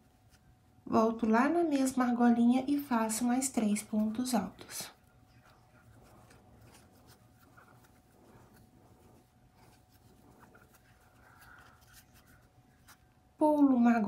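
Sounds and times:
crochet hook rubbing yarn: 0:03.8 - 0:13.2.

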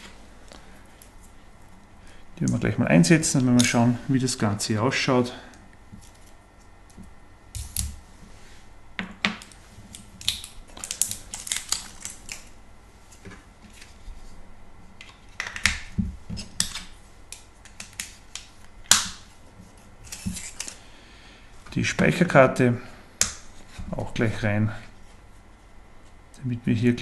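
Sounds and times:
plastic packaging crackling: 0:10.0 - 0:12.6.

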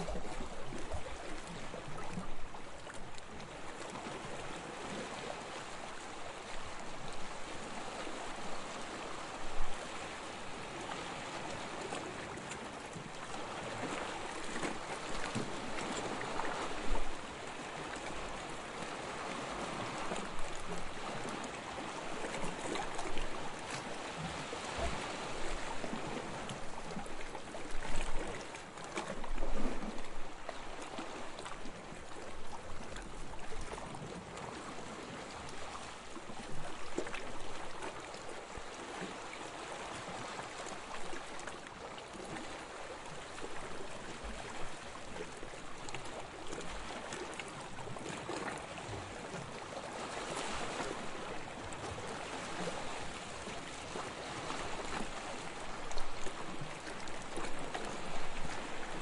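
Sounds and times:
small waves lapping: 0:00.0 - 0:59.0.

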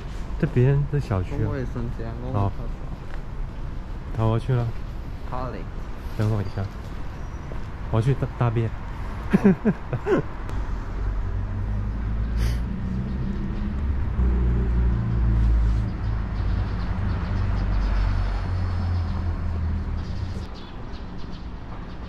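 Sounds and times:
faint street noise: 0:00.0 - 0:22.0.

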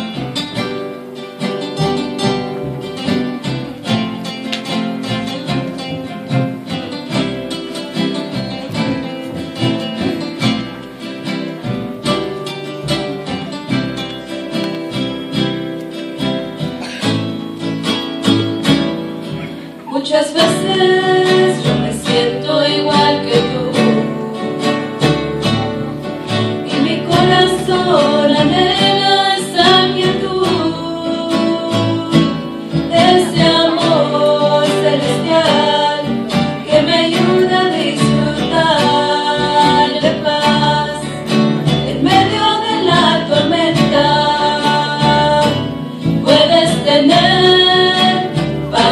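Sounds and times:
guitar accompaniment: 0:00.0 - 0:48.9
women singing: 0:19.9 - 0:48.9.

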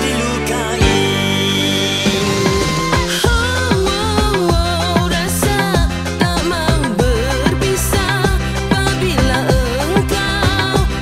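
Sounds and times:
backing track with steady beat: 0:00.0 - 0:11.0
woman singing pop melody: 0:00.0 - 0:11.0.

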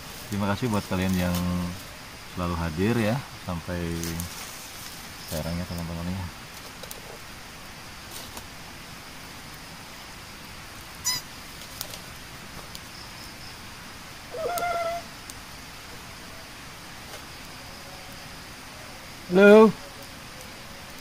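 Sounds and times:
campfire crackling: 0:00.0 - 0:21.0
steady high hiss: 0:00.0 - 0:21.0
animal chirp: 0:11.0 - 0:11.3, 0:14.3 - 0:15.1
animal call bending upward: 0:14.3 - 0:15.1.

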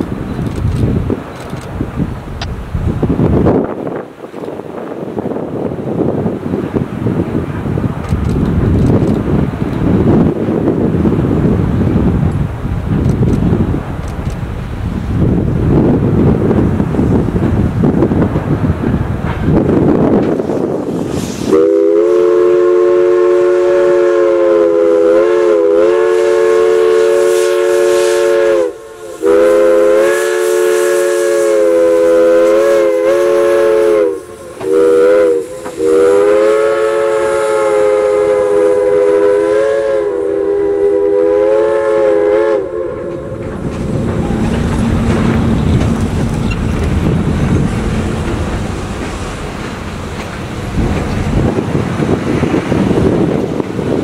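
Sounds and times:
train cars rumbling over bridge: 0:00.0 - 0:54.0
steam whistle blasts: 0:21.1 - 0:43.5.

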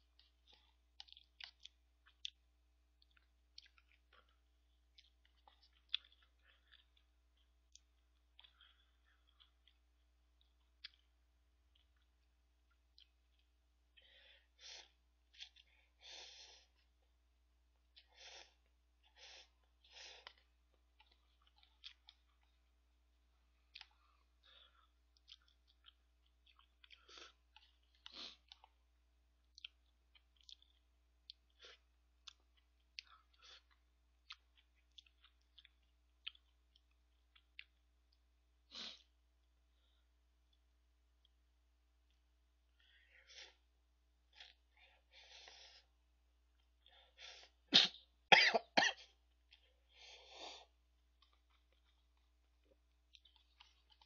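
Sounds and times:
chewing: 0:00.0 - 0:13.6, 0:17.9 - 0:22.8, 0:23.4 - 0:39.1, 0:50.6 - 0:54.0.

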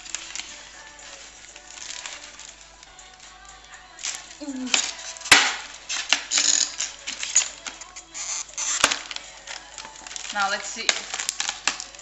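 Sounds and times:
paper wrapping rustling: 0:00.0 - 0:12.0
scissors cutting tape: 0:04.0 - 0:12.0.

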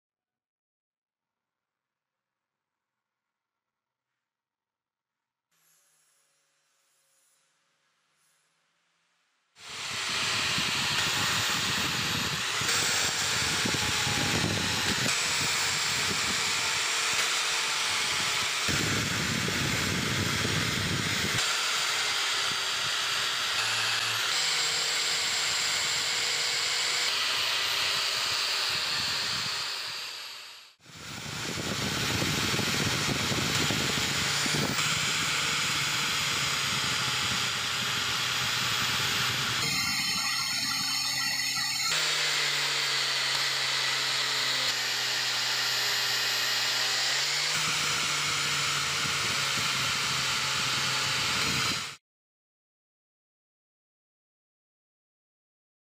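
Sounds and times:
abrasive wheel grinding steel: 0:09.6 - 0:52.0
buffing wheel polishing steel: 0:09.6 - 0:52.0.

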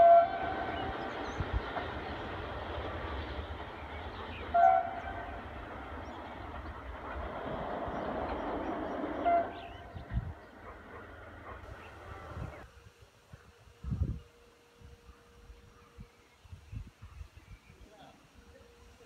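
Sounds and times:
train horn: 0:00.0 - 0:01.4, 0:04.4 - 0:06.1, 0:09.1 - 0:10.1
rumble of a running train: 0:00.0 - 0:17.3.

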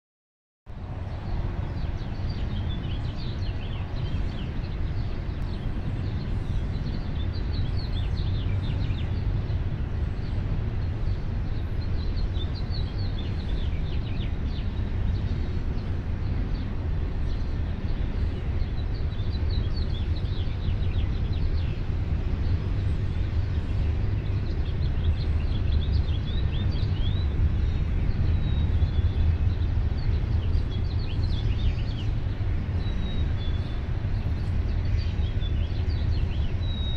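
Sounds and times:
steady low rumble: 0:00.7 - 0:36.9
birds chirping and singing: 0:17.2 - 0:36.9.

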